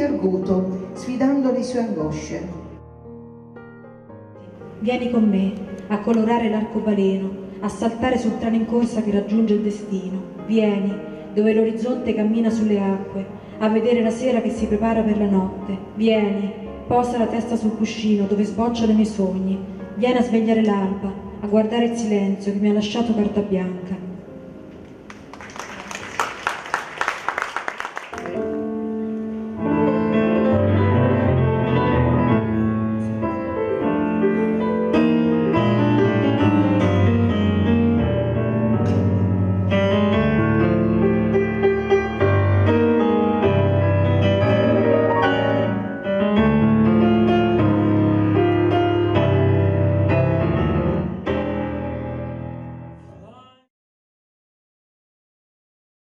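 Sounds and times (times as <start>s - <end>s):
solo piano music: 0.0s - 21.0s, 28.1s - 53.1s
applause: 24.9s - 28.5s.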